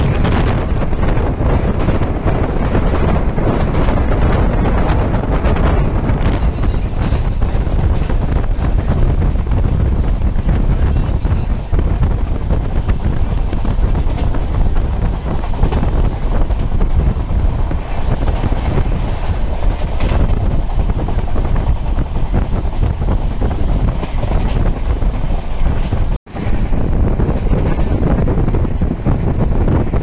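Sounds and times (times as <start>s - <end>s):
moving train rumble: 0.0s - 30.0s
wind buffeting microphone: 0.0s - 30.0s.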